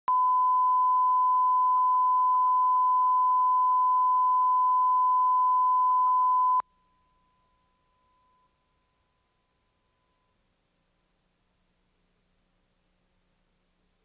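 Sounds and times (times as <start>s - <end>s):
steady pure reference tone beep: 0.1s - 10.4s.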